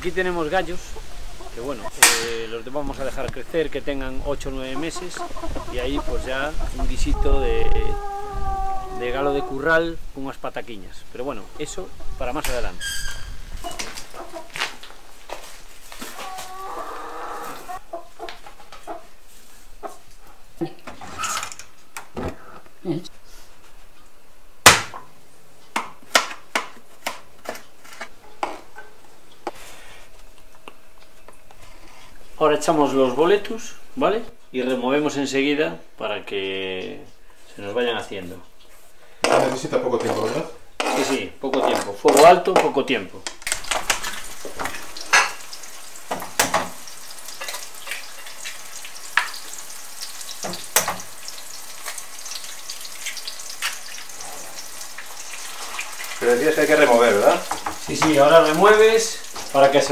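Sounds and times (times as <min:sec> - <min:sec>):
mushrooms sizzling in a frying pan: 0:43.5 - 0:59.9.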